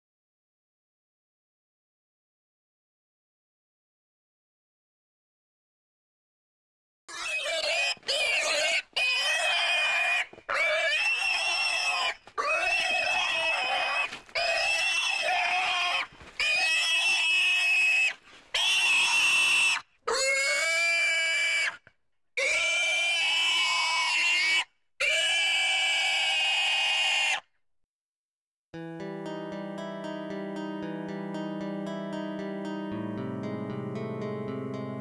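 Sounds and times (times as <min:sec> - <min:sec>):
pig squealing: 0:07.1 - 0:21.8, 0:22.4 - 0:27.4.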